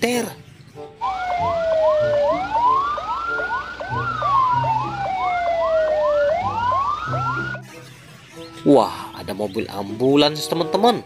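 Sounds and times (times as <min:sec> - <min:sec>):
siren fast yelp: 0:01.0 - 0:07.6
siren slow wail: 0:01.0 - 0:07.6.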